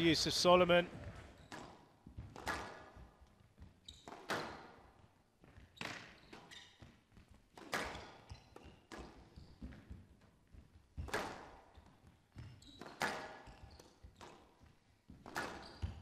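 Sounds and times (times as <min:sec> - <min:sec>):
court shoes squeaking: 0:00.8 - 0:16.0
squash ball cracking off walls: 0:01.0 - 0:03.2, 0:04.0 - 0:06.4, 0:07.5 - 0:09.9, 0:11.0 - 0:13.5.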